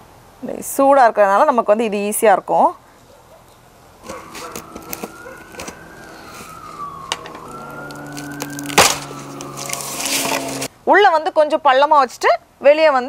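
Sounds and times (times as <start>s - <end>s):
sharp crack: 4.0s - 10.7s
siren wailing: 4.0s - 10.7s.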